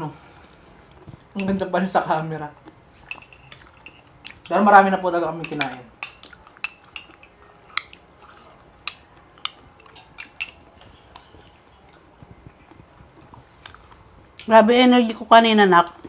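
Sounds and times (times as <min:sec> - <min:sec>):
spoons clinking against glass cups: 0:03.0 - 0:11.8.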